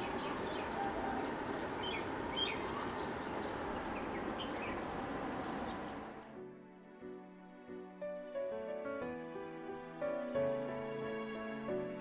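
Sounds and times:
outdoor hiss: 0.0 - 6.4
small birds chirping: 0.0 - 6.4.

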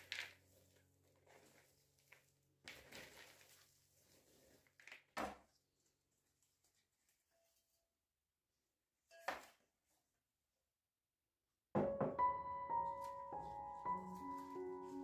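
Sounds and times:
bark chips rustling and crunching: 0.0 - 5.0.

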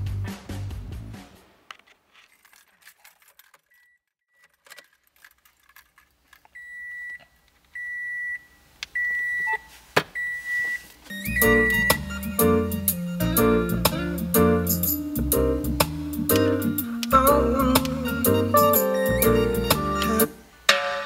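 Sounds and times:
keys jangling: 4.6 - 6.4
car warning chime beeping: 6.6 - 7.2, 7.8 - 13.7.

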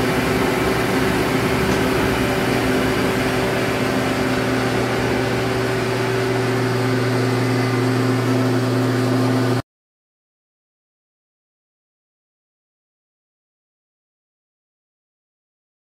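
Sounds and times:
lathe motor humming: 0.0 - 9.6.

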